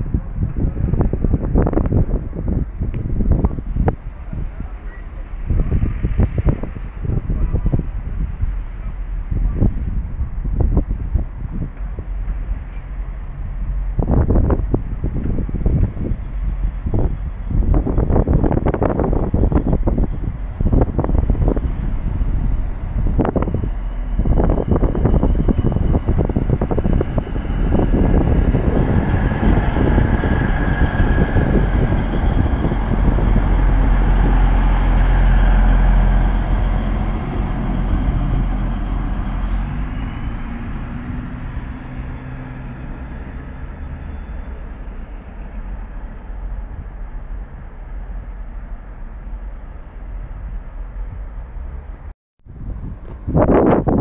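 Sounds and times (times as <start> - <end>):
diesel engine: 0.0 - 53.9
train wheel clatter on track: 0.4 - 21.7.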